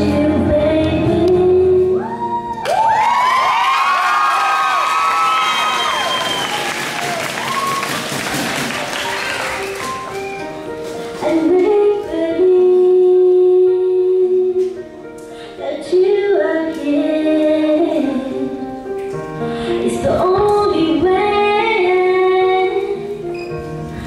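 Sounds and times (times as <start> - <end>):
woman singing pop ballad: 0.0 - 2.2, 11.2 - 14.8, 15.5 - 18.6, 19.8 - 23.2
instrumental accompaniment: 7.6 - 24.0.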